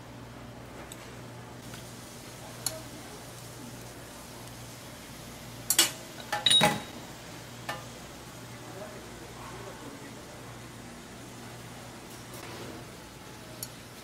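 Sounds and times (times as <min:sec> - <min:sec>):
metal tongs clanking on griddle: 0:02.6 - 0:02.9, 0:05.6 - 0:07.0, 0:07.6 - 0:08.0.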